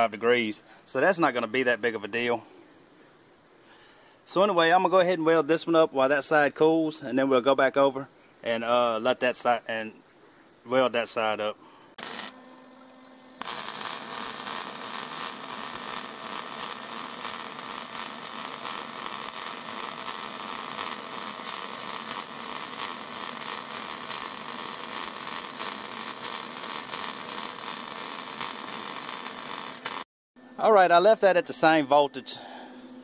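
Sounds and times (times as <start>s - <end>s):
welding arc crackling: 11.9s - 12.4s, 13.4s - 30.1s.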